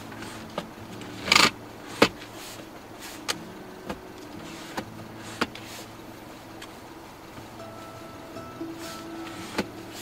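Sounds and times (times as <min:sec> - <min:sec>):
steady low hum: 0:00.0 - 0:10.0
seat adjustment lever clicking: 0:00.2 - 0:02.3, 0:03.2 - 0:05.8.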